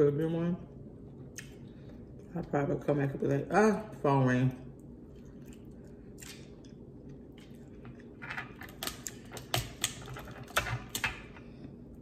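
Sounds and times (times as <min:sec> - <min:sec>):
crab shells cracking: 0:08.5 - 0:11.2.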